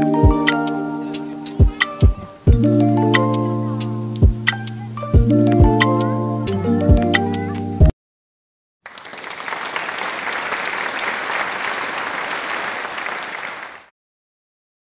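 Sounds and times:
background music: 0.0 - 7.9
applause: 8.9 - 13.9.

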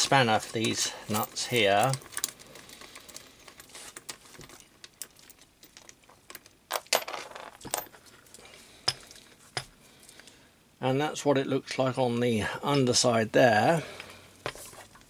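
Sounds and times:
metal nuts and washers clinking: 0.0 - 9.7.

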